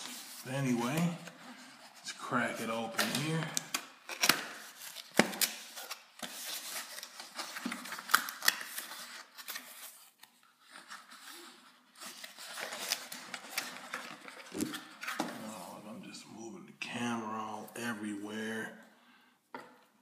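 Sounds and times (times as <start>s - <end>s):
cardboard and foam rustling: 0.0s - 15.8s.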